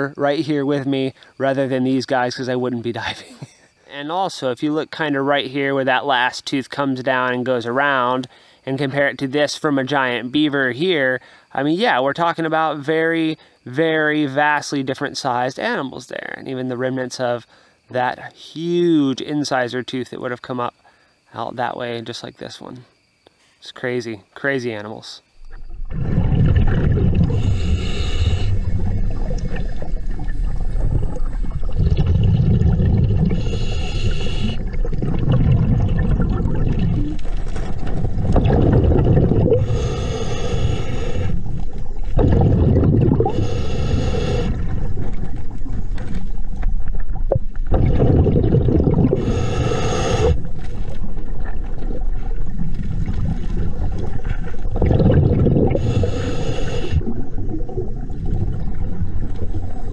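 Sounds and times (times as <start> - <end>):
underwater bubbles rumble: 25.4 - 39.9, 41.0 - 49.6, 50.2 - 59.9
diver breathing through regulator: 25.9 - 29.4, 32.2 - 34.9, 39.4 - 45.0, 48.8 - 50.7, 55.0 - 57.1.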